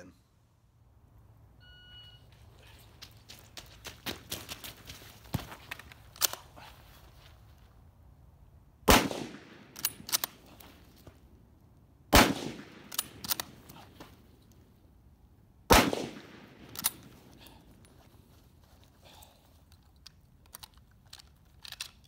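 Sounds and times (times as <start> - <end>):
rifle shots: 8.8 - 10.5, 12.1 - 13.6, 15.7 - 17.3
metallic bolt clicks: 19.7 - 22.0.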